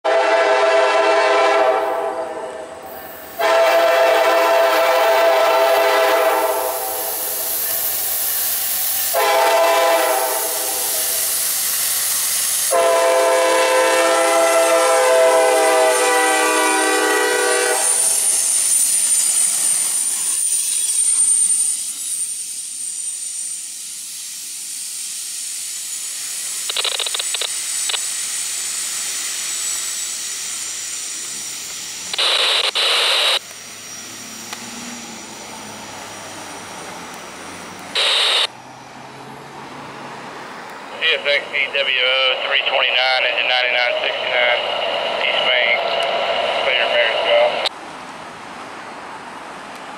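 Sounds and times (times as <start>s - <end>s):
locomotive air horn blasts: 0.0s - 2.6s, 3.4s - 7.1s, 9.1s - 10.9s, 12.7s - 18.3s
train cars rumbling past: 0.1s - 26.7s, 33.4s - 49.9s
loud burst of noise: 24.8s - 36.3s, 37.9s - 38.5s.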